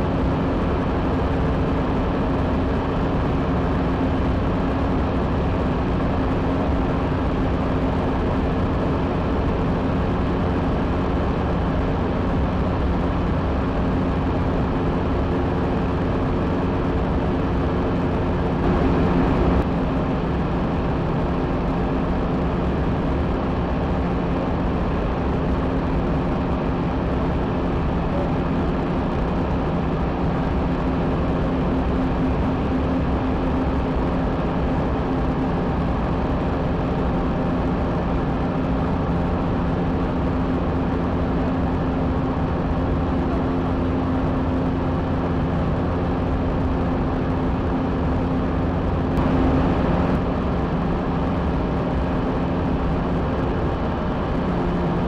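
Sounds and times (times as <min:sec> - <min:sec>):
aircraft engine and propeller drone: 0:00.0 - 0:55.0
rushing air: 0:48.2 - 0:54.4.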